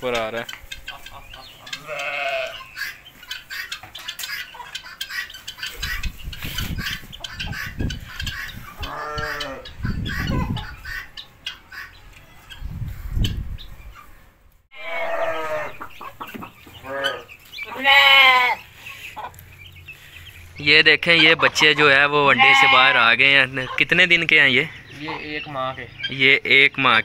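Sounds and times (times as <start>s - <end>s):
sheep and goats bleating: 1.6s - 2.8s, 8.7s - 9.8s, 14.7s - 15.9s, 16.7s - 18.7s, 22.2s - 23.2s.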